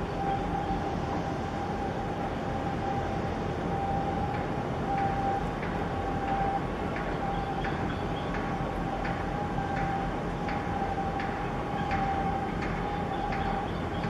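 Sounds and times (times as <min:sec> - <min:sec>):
mid-pitched machinery hum: 0:00.0 - 0:14.0
ship engine rumble: 0:00.0 - 0:14.0.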